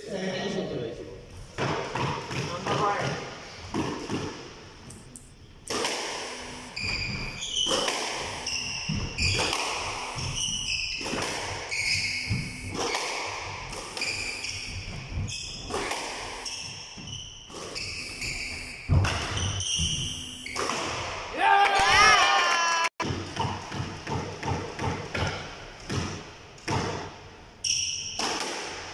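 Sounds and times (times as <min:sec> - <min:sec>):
squash ball hitting rackets and walls: 0:01.4 - 0:04.8, 0:05.6 - 0:21.4, 0:23.0 - 0:28.9
shoe squeaks: 0:06.4 - 0:13.0, 0:13.9 - 0:20.6, 0:27.6 - 0:28.2.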